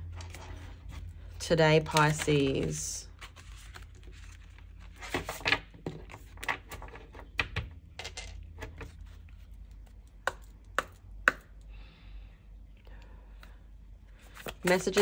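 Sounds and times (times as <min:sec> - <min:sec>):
cards rustling: 0:00.0 - 0:07.4, 0:14.1 - 0:15.0
cards tapping on wood: 0:05.4 - 0:08.9, 0:10.2 - 0:11.5.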